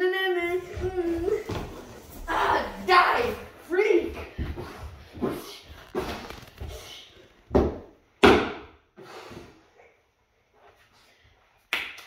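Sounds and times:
heavy thumps on wooden floor: 0:07.5 - 0:08.7.

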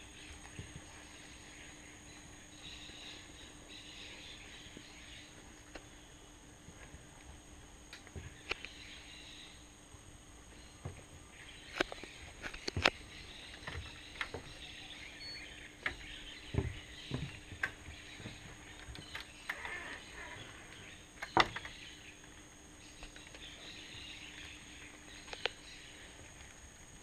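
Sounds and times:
high drone and hiss: 0:00.0 - 0:27.0.

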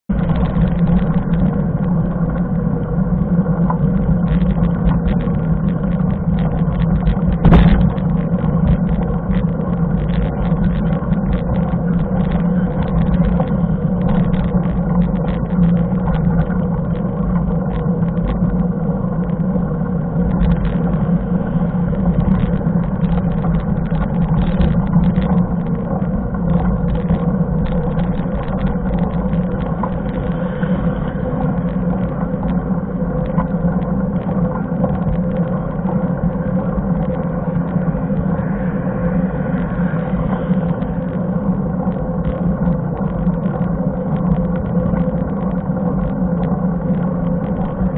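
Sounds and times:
bike rattles and clicks: 0:00.1 - 0:30.7
bike tyres rumbling on asphalt: 0:00.1 - 0:47.9.

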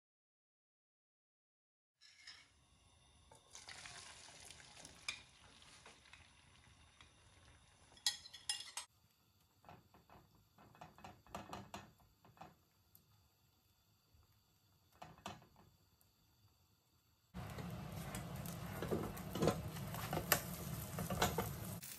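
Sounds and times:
metal spoon scraping pan: 0:02.0 - 0:02.6, 0:08.0 - 0:08.9
egg mixture sizzling in oil: 0:02.0 - 0:21.9.

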